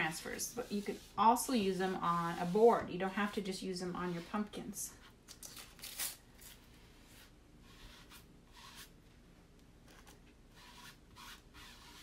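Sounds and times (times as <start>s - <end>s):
soft scrapes: 0.0s - 5.1s.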